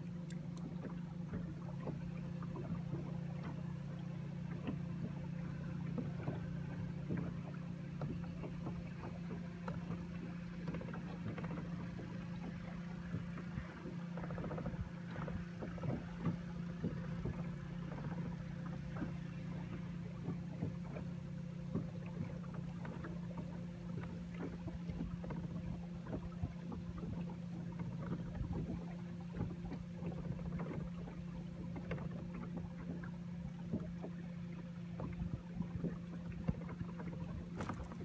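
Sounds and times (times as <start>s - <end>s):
boat motor humming: 0.0s - 38.0s
light ticks: 0.2s - 2.0s.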